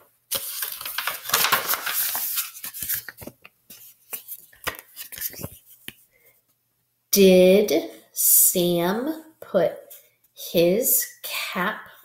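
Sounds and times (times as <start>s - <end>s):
paper pages rustling: 0.3s - 6.1s
light taps and rubs: 2.8s - 6.0s.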